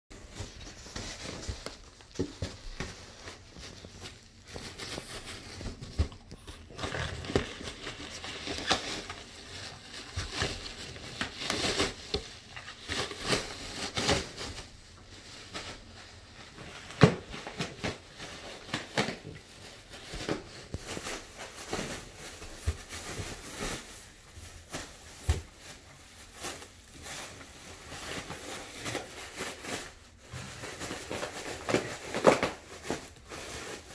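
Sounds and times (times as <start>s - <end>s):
dog rustling plastic packaging: 0.1s - 33.9s
cardboard tearing: 0.3s - 14.5s.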